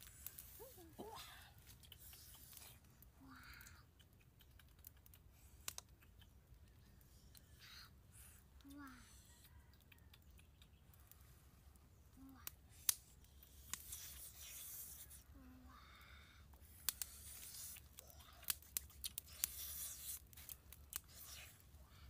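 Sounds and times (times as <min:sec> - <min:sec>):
faint hiss: 0:00.0 - 0:03.9, 0:10.9 - 0:22.0
wood fire crackling and popping: 0:00.0 - 0:07.4, 0:09.8 - 0:15.2, 0:16.5 - 0:21.7.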